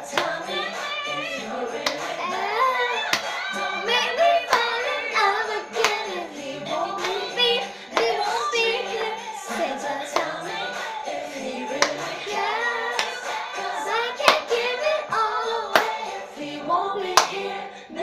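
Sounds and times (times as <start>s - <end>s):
girl singing: 0.0s - 18.0s
pop backing track: 0.0s - 18.0s
sharp handclaps: 0.1s - 1.0s, 1.8s - 2.2s, 3.0s - 3.4s, 4.5s - 4.9s, 5.8s - 6.2s, 7.0s - 7.3s, 7.9s - 8.4s, 10.1s - 11.0s, 11.8s - 12.2s, 12.9s - 13.5s, 14.2s - 14.6s, 15.7s - 16.1s, 17.2s - 17.4s.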